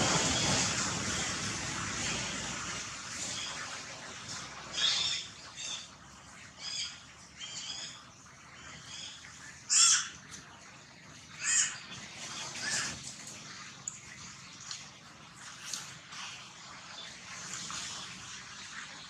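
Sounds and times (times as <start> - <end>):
harsh animal calls: 8.6 - 10.3, 11.3 - 13.0.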